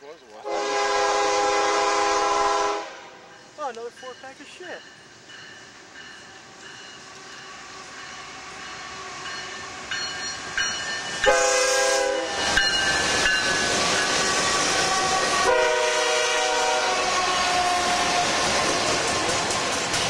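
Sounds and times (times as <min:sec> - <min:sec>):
train air horn: 0:00.4 - 0:03.4, 0:11.2 - 0:12.6, 0:14.3 - 0:18.8
locomotive engines and rolling wheels: 0:03.3 - 0:11.4, 0:12.2 - 0:15.4, 0:16.9 - 0:20.0.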